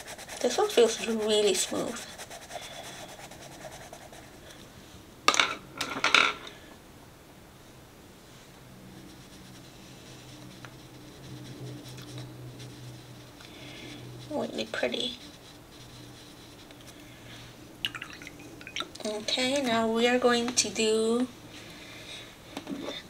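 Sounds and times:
pencil scratching on paper: 0.0s - 4.4s, 9.0s - 17.0s
faint steady hum: 0.0s - 23.0s.

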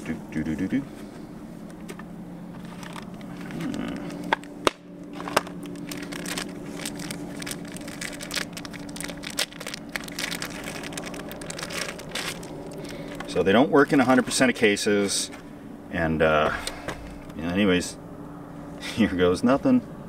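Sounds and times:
steady low hum: 0.0s - 20.0s
handling noise crinkling: 1.7s - 13.4s.

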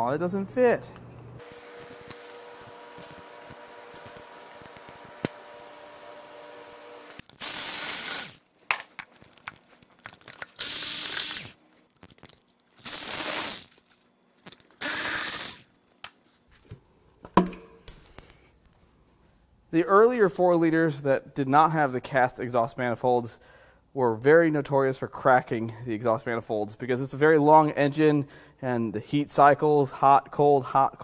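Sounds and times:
power tool running in bursts: 1.4s - 8.4s, 10.6s - 11.6s, 12.8s - 13.7s, 14.8s - 15.6s.

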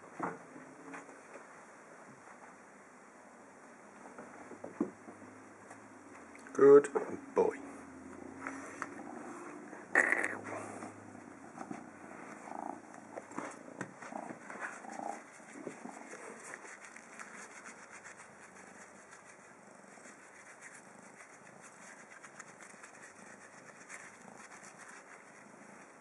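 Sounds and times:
kitten purring faintly: 6.5s - 26.0s.

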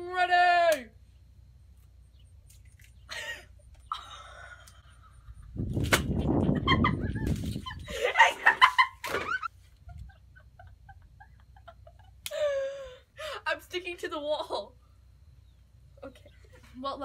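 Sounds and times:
people laughing: 6.4s - 12.5s.

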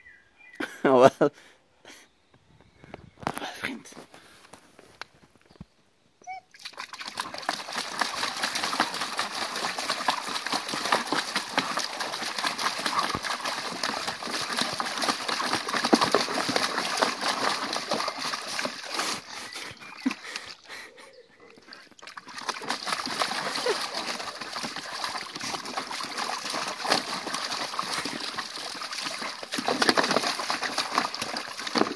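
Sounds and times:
dog splashing in water: 6.5s - 20.8s, 21.6s - 31.9s.

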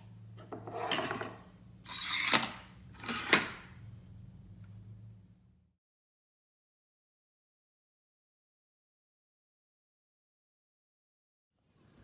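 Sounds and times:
low steady hum: 2.6s - 5.7s.

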